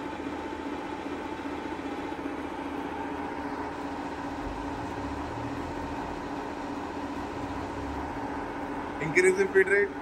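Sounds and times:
machine power feed humming: 0:00.0 - 0:10.0.

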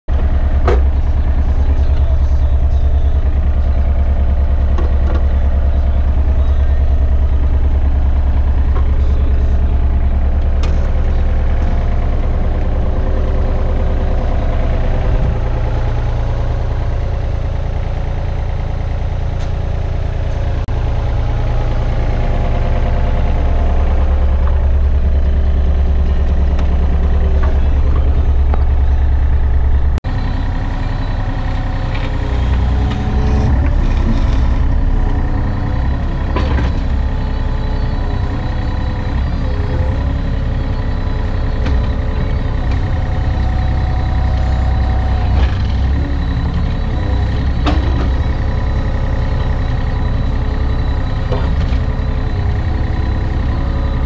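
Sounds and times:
excavator diesel engine drone: 0:00.1 - 0:54.0.

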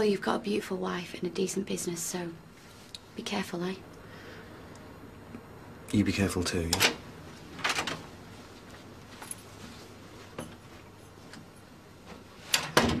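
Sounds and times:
door banging shut: 0:12.6 - 0:13.0.

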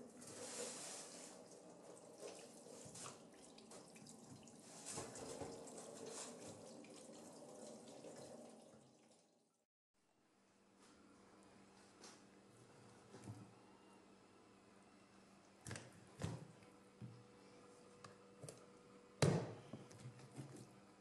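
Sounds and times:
tap running into sink: 0:02.9 - 0:06.8.

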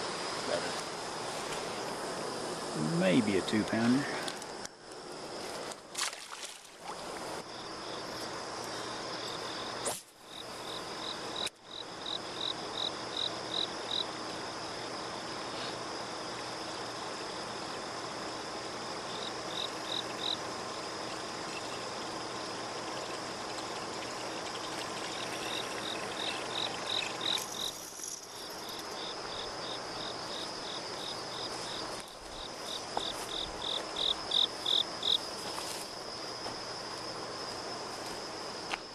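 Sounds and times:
high-pitched insect drone: 0:00.0 - 0:04.5, 0:15.6 - 0:38.9
crickets chirping: 0:00.0 - 0:38.9.

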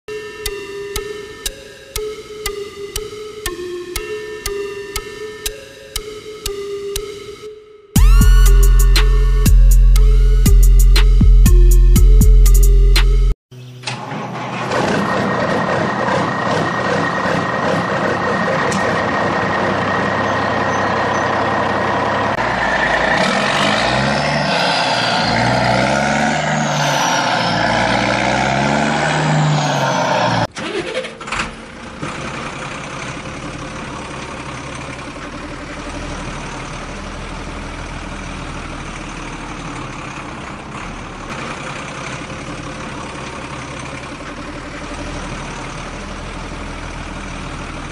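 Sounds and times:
truck engine revving: 0:08.0 - 0:47.9
engine idling rumble: 0:31.2 - 0:47.9.

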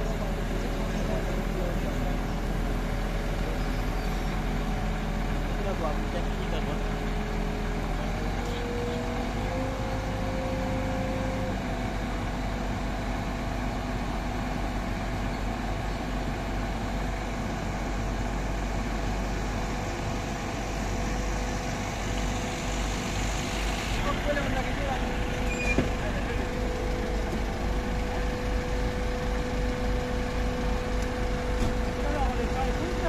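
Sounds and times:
diesel engine running: 0:00.0 - 0:33.0
whining pump tone: 0:19.4 - 0:33.0.

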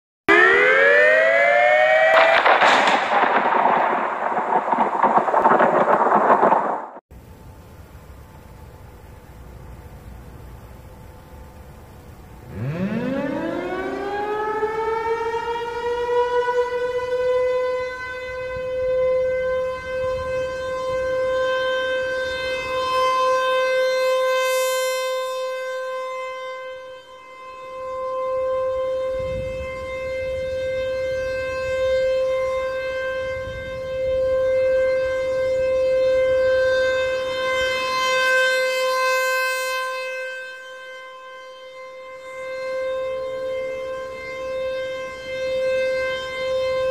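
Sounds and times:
rotating warning siren: 0:00.3 - 0:46.9.

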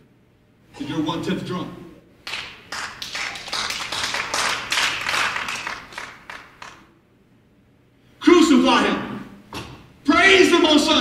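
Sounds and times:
congregation clapping: 0:02.2 - 0:06.9.

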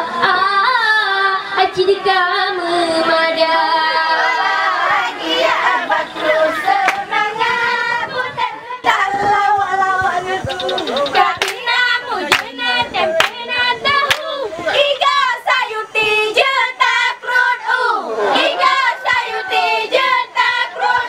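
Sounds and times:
group of girls singing: 0:00.0 - 0:21.0
hand claps: 0:06.8 - 0:07.0, 0:11.4 - 0:11.6, 0:12.3 - 0:12.5, 0:13.2 - 0:13.4, 0:14.0 - 0:14.3.

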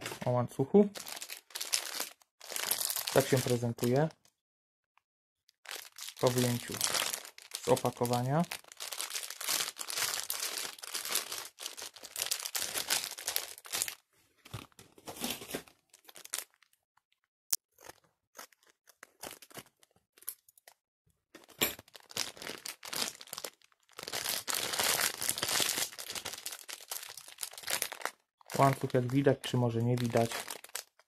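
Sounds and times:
packaging crinkling: 0:01.0 - 0:04.1, 0:05.6 - 0:16.8, 0:21.4 - 0:31.0.

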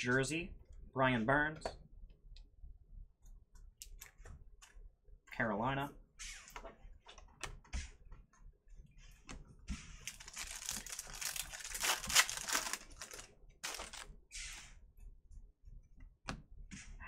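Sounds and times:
foil card pack crinkling: 0:10.0 - 0:14.1.

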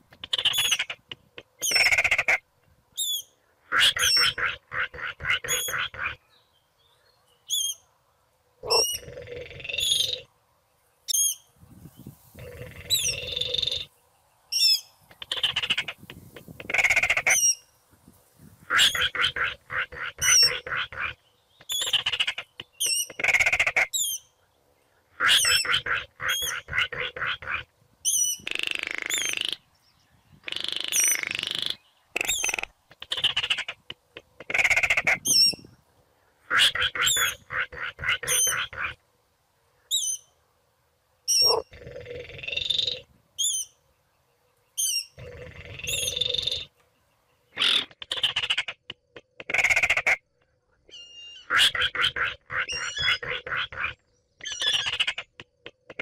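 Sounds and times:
bird dry rattling calls: 0:14.6 - 0:17.6, 0:18.7 - 0:24.2, 0:25.2 - 0:29.6, 0:30.4 - 0:35.6, 0:47.6 - 0:50.2, 0:50.9 - 0:56.0.

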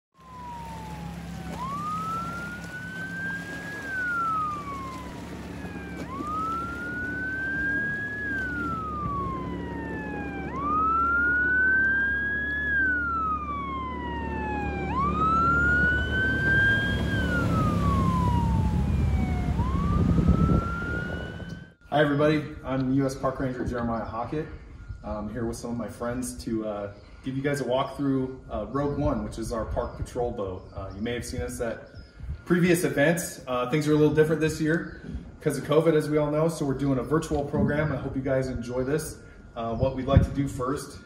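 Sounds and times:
steady low drone: 0:00.2 - 0:21.8
siren wailing: 0:00.2 - 0:22.1.

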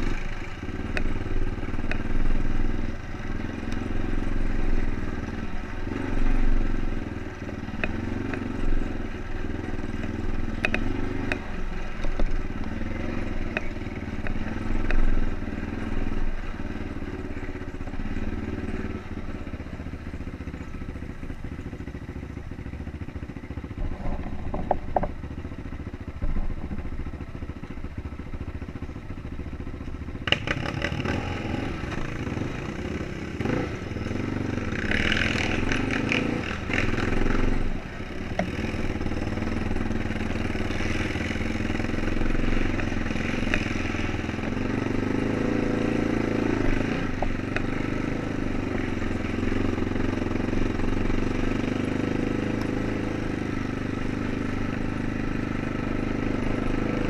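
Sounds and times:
atv engine running: 0:00.0 - 0:57.0
knocks and rattles: 0:23.8 - 0:25.2.

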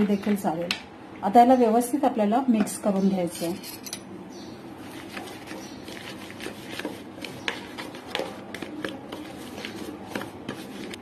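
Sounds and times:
spoon scraping plastic bowl: 0:04.8 - 0:11.0.

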